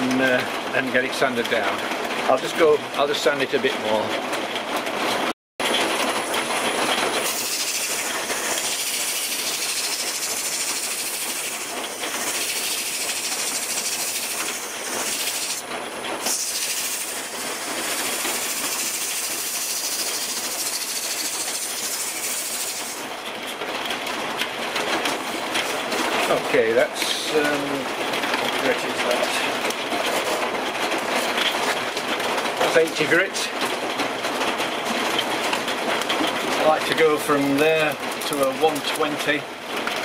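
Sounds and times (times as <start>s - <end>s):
sandpaper sanding wood on lathe: 6.0s - 23.1s.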